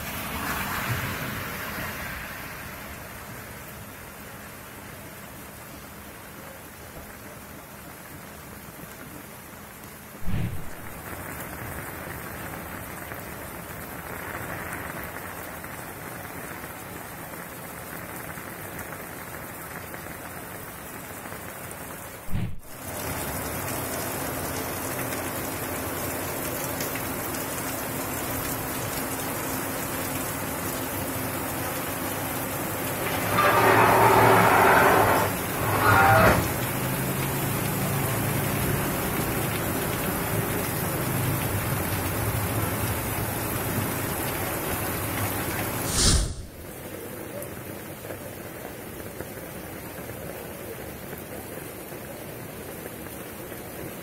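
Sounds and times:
heavy rain on pavement: 0.0 - 54.0
loud thumps: 10.2 - 10.9, 22.3 - 22.7.

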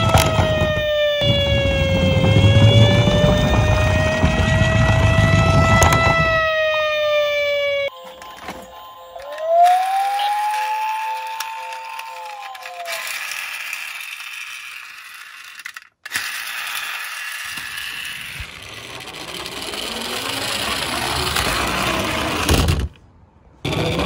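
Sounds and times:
toy car thumping into object: 0.0 - 0.8, 22.4 - 23.0
toy car gear mechanism whirring: 0.0 - 7.4, 8.1 - 23.0, 23.6 - 24.0.

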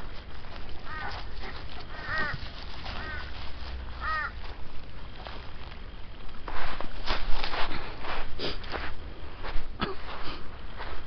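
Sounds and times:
animal calling: 0.8 - 3.4, 4.0 - 4.4.

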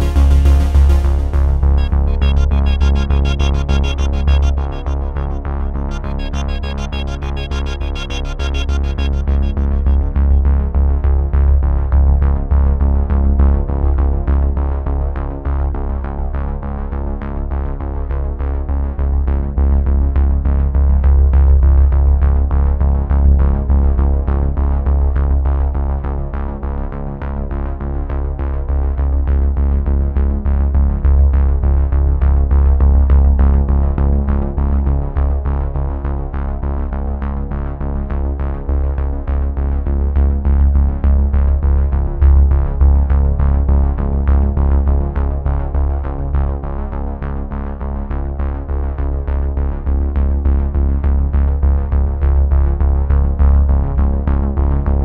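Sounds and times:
synthesizer music with heavy bass: 0.0 - 10.9.

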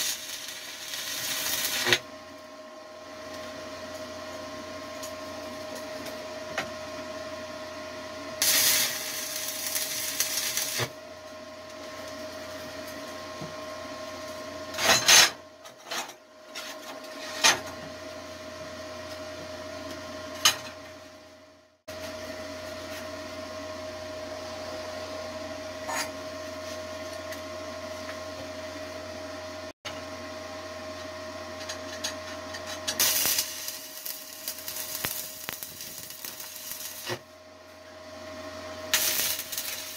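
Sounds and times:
welding arc crackling: 0.0 - 2.0, 8.4 - 11.0, 32.9 - 37.3, 38.9 - 39.9
steady electrical hum: 0.0 - 39.9.

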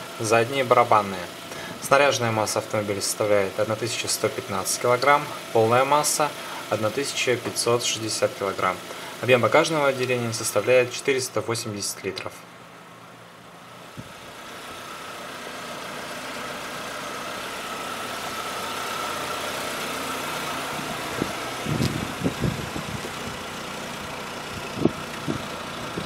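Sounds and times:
vehicle engine running: 0.0 - 26.0.

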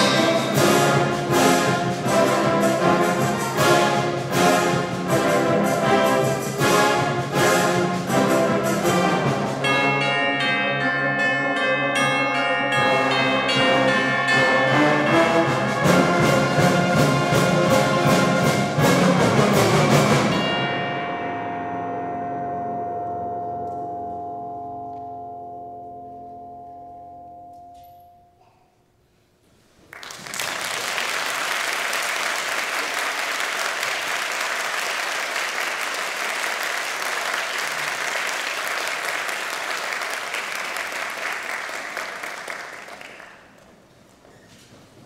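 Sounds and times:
wind band held chord: 0.0 - 26.4
audience applause: 29.9 - 43.6.

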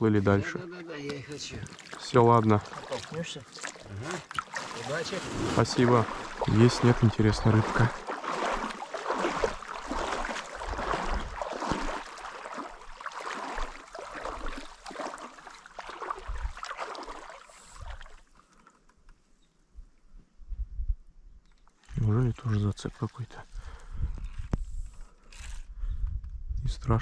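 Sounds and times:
oars splashing in water: 1.0 - 18.6.

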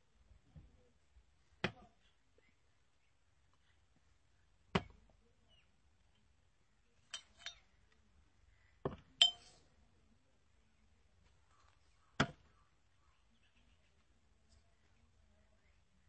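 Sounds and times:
glass bottles clinking: 7.1 - 7.6, 9.2 - 9.5.

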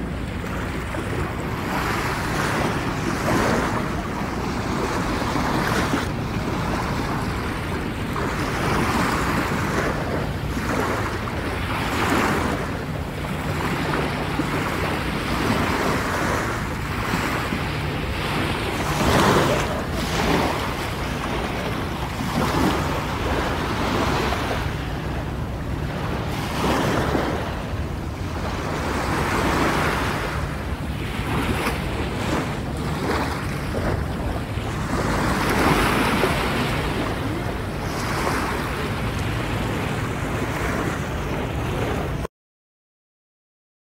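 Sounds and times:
sea waves breaking on shore: 0.0 - 42.3.

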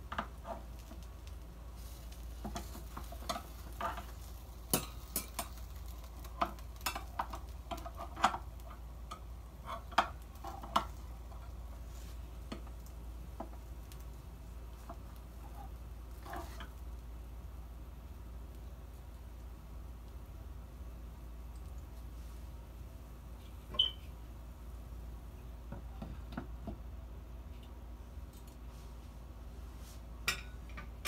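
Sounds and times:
spatula scraping a pan: 1.8 - 8.7, 9.6 - 12.2, 15.4 - 16.8.

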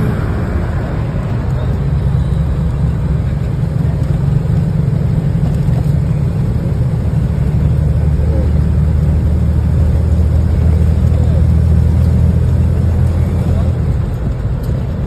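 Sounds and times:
deeper drone: 0.0 - 11.9
bus engine and tyre rumble: 0.0 - 15.0.

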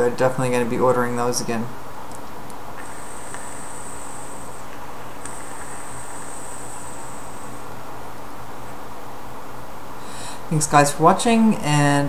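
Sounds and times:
steady low hum: 0.0 - 12.0
e-cigarette high-pitched whine: 2.8 - 7.9.

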